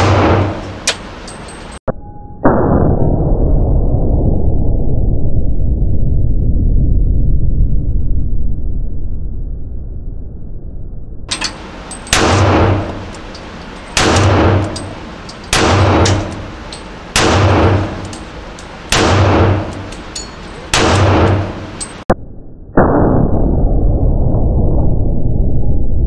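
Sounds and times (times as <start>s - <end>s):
steady dull noise: 11.3s - 22.1s
pistol shots echoing indoors: 13.9s - 21.9s.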